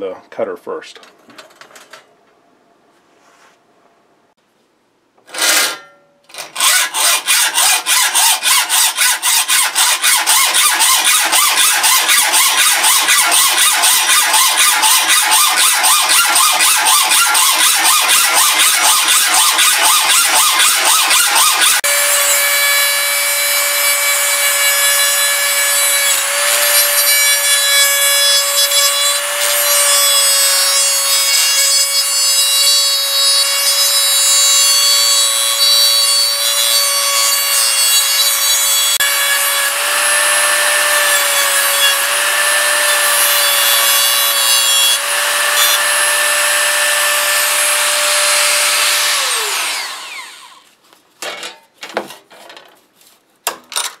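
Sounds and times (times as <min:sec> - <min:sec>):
rotary tool cutting steel: 0:05.3 - 0:50.7
hacksaw strokes on metal: 0:05.4 - 0:50.6
rotary tool winding down: 0:41.7 - 0:50.7.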